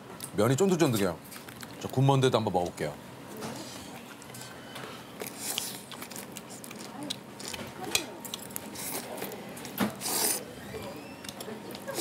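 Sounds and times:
noodles being slurped: 0:10.0 - 0:10.5.

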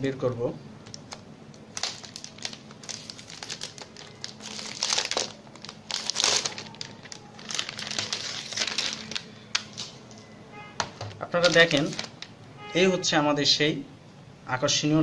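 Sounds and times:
plastic bag crinkling: 0:00.8 - 0:10.1, 0:11.0 - 0:12.4.

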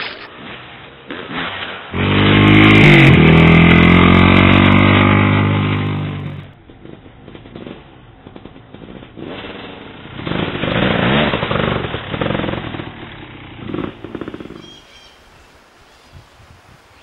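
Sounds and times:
quiet outdoor background: 0:00.0 - 0:17.0
dirt bike engine revving: 0:01.9 - 0:07.8, 0:08.4 - 0:14.8.

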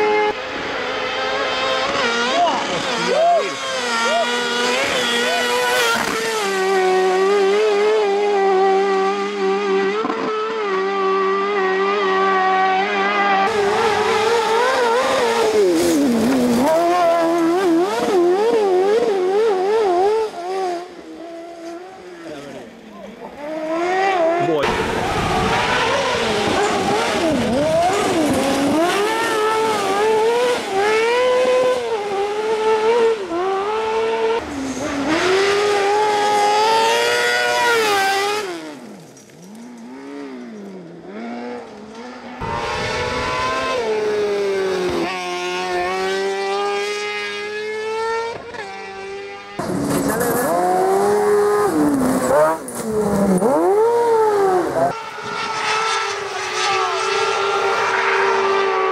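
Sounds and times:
motorcycle engines revving: 0:00.0 - 0:58.9.

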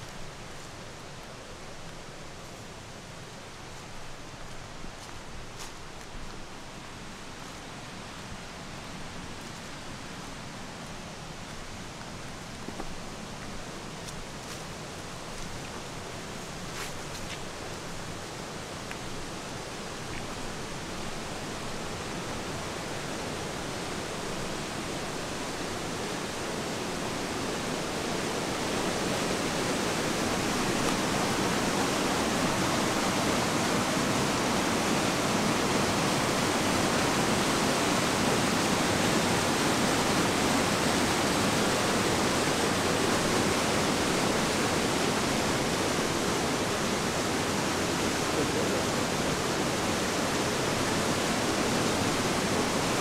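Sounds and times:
water rushing over rocks: 0:08.9 - 0:53.0.

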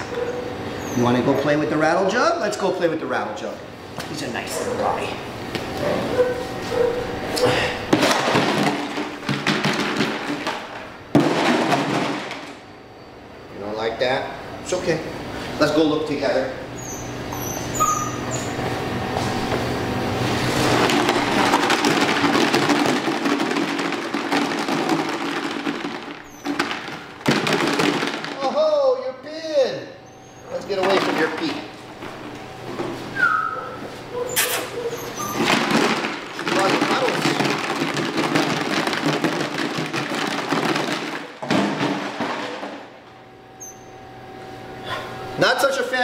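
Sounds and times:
plastic rattle jug shaken: 0:20.8 - 0:28.5, 0:35.4 - 0:41.3.

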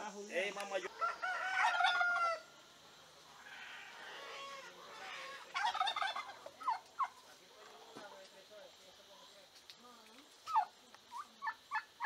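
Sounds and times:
fowl calling: 0:00.8 - 0:02.6, 0:03.4 - 0:07.2.

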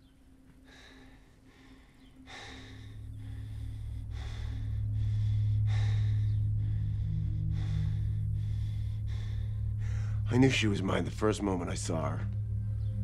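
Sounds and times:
low sustained background music: 0:00.0 - 0:13.0
person breathing heavily and gasping: 0:00.6 - 0:10.3.

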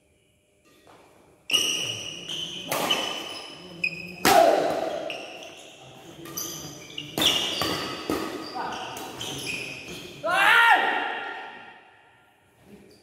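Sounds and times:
badminton rackets hitting shuttlecock: 0:00.9 - 0:03.6, 0:06.3 - 0:09.9.

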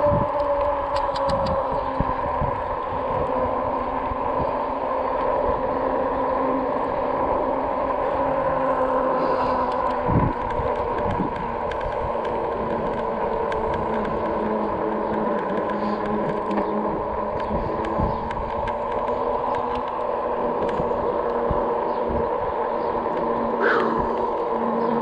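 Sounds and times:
electric hub motor whining: 0:00.0 - 0:25.0
tyres rumbling on path: 0:00.0 - 0:25.0
small clicks: 0:00.3 - 0:01.7, 0:09.4 - 0:21.5.

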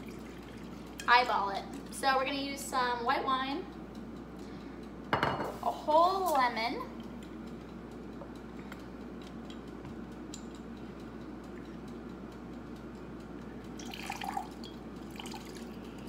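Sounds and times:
juice dripping into glass cup: 0:13.5 - 0:16.0.

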